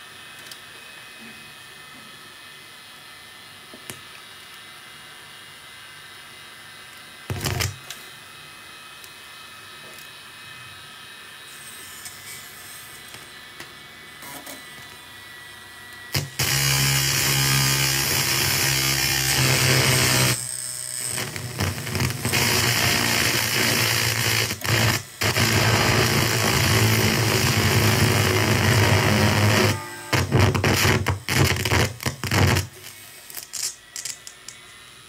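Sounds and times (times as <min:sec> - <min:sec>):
faint electronic buzz: 0:19.3 - 0:33.2
loud electronic hiss: 0:21.1 - 0:33.0.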